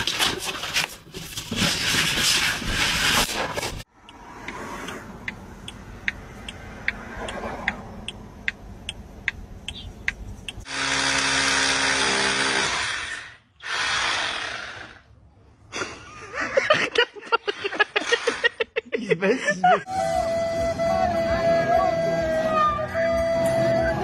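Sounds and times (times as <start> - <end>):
cordless drill running: 10.7 - 15.0.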